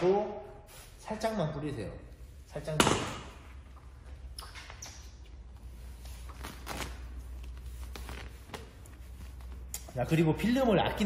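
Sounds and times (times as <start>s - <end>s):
plastic film rustling: 5.6s - 9.7s.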